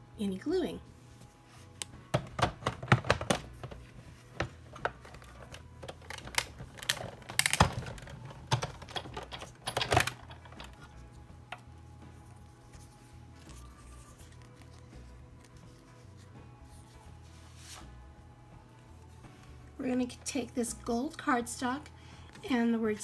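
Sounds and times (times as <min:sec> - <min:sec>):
plastic plates clacking: 0:02.2 - 0:03.8.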